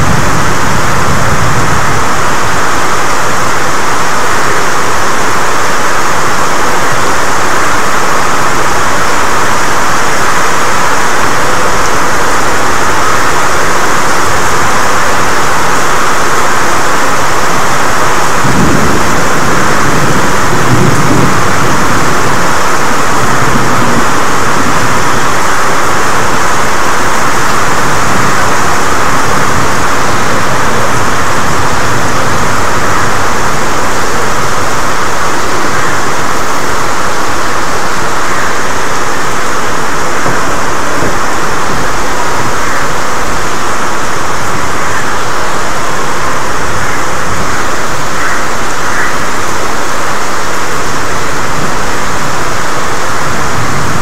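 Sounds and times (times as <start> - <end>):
heavy rain falling: 0.0 - 54.0
low rumble of thunder: 18.3 - 26.4.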